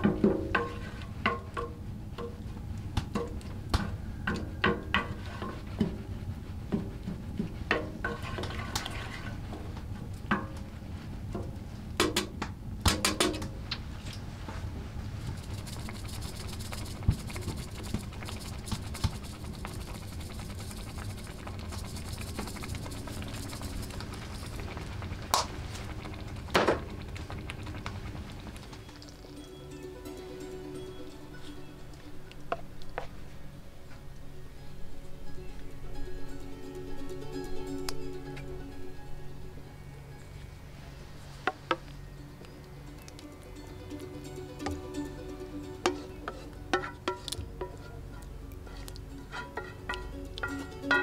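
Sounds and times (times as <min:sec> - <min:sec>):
spoon scraping a pan: 0:00.1 - 0:01.6, 0:04.3 - 0:06.1, 0:06.7 - 0:09.8, 0:45.8 - 0:51.0
sauce sizzling: 0:15.3 - 0:32.5, 0:43.0 - 0:51.0.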